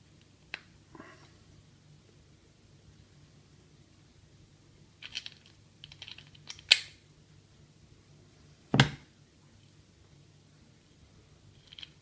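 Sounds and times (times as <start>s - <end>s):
small hard parts clicking and rattling: 5.0s - 6.8s, 11.6s - 12.0s
knock on work surface: 8.8s - 9.0s.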